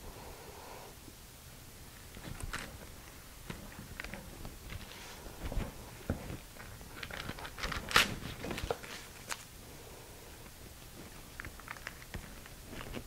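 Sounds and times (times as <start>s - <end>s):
parchment paper crinkling: 2.1s - 9.5s, 10.7s - 13.0s.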